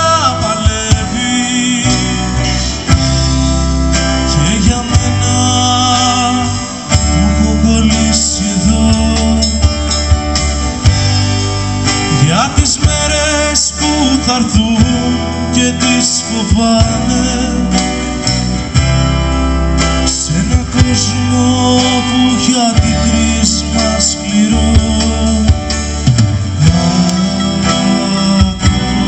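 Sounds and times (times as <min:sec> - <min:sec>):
man singing: 0:00.0 - 0:10.4, 0:12.0 - 0:18.8, 0:19.8 - 0:29.0
bass: 0:00.0 - 0:29.0
drums: 0:00.0 - 0:29.0
strummed guitar: 0:00.0 - 0:29.0.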